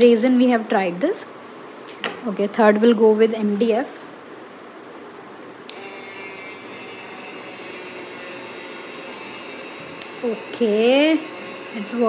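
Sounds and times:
mini electric drill drilling: 5.7 - 12.0.

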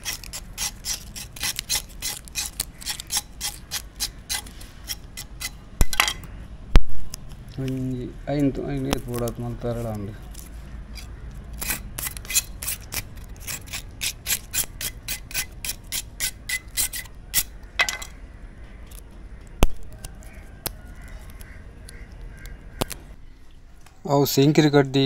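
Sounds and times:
knife scraping leaf midrib: 0.0 - 5.6, 7.6 - 17.6.

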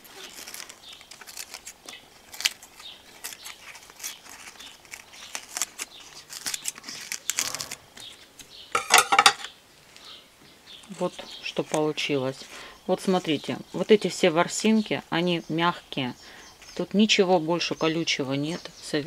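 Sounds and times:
leaves crinkling and rustling: 0.0 - 10.1, 10.7 - 14.9.

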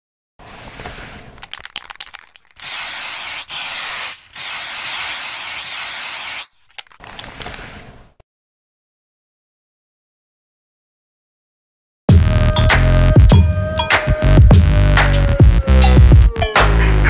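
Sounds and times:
spray can clicks: 1.4 - 7.6
aerosol spray hissing: 2.6 - 6.6.

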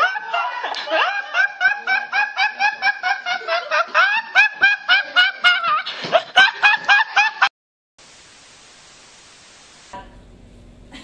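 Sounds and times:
boy laughing hard: 0.0 - 7.5.

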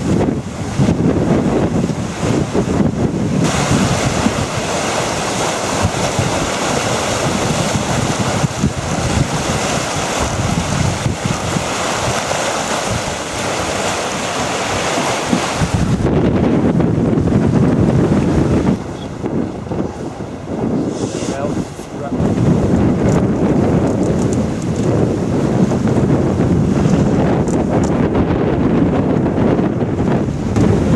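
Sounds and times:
water rushing along hull: 0.0 - 30.9
wind buffeting microphone: 0.0 - 30.9.

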